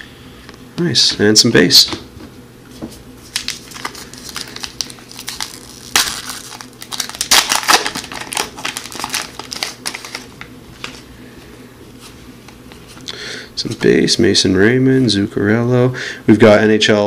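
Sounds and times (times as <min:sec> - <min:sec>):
foil wrapper tearing and crinkling: 0:03.3 - 0:11.0.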